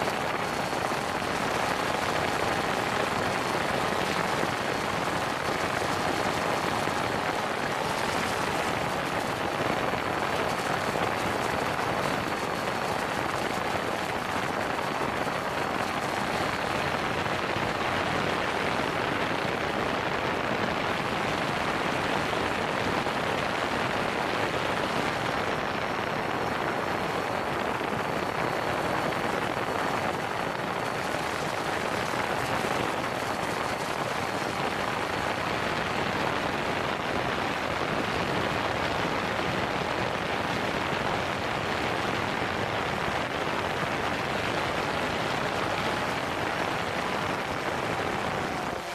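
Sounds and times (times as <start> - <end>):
faint high motor whine: 0.0 - 48.9
propeller wash rushing: 0.0 - 48.9.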